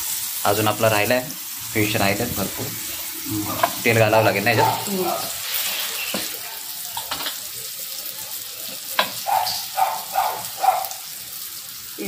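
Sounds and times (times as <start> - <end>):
fish sizzling in oil: 0.0 - 12.0
oil spurting on hot pan: 5.2 - 7.3.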